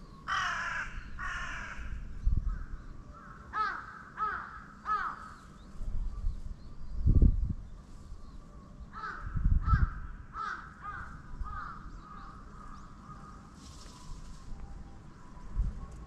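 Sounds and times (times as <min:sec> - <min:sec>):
crow cawing: 0:00.3 - 0:05.4, 0:08.9 - 0:13.5.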